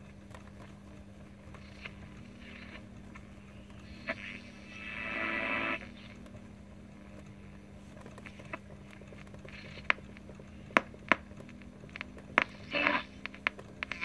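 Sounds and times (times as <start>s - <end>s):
low hum: 0.0s - 14.0s
radio clicks and crackles: 0.0s - 14.0s
radio static hiss: 0.0s - 14.0s
brief radio signal: 3.9s - 6.2s.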